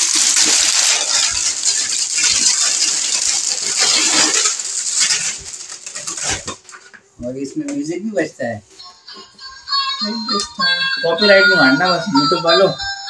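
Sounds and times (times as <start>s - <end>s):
plastic wrapping crinkling: 0.0s - 7.0s.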